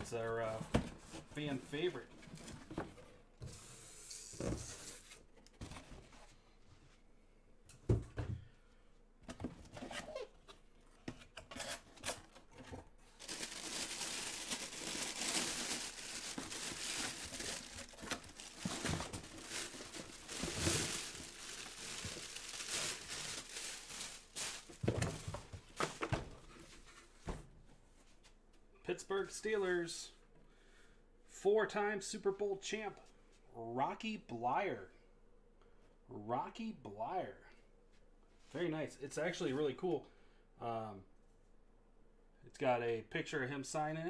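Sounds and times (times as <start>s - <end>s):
crinkling plastic: 13.1s - 26.1s.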